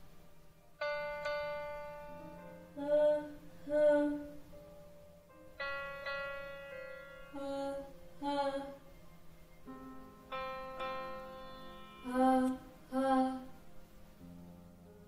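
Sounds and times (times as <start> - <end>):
piano note ringing: 0.7 - 2.8, 4.6 - 12.6
woman singing ha sounds: 2.7 - 4.4, 7.3 - 8.8, 12.0 - 13.6.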